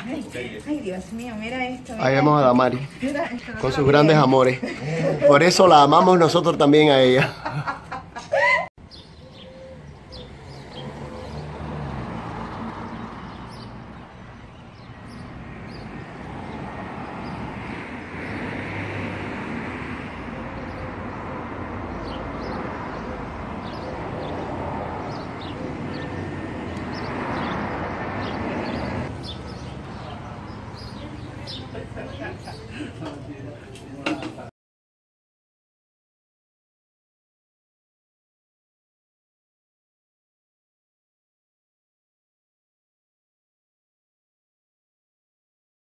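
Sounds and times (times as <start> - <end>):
cars passing: 0.0 - 34.5.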